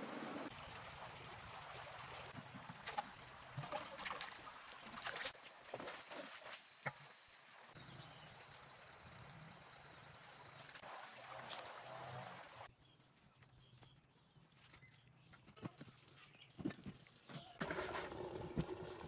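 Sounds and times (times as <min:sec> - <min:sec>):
flowing stream water: 0:00.0 - 0:07.8, 0:08.7 - 0:12.7, 0:17.6 - 0:19.0.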